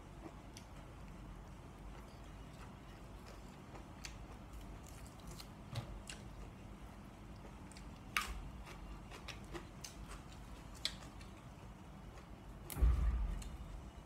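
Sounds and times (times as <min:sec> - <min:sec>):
dull thump: 0:12.7 - 0:14.0.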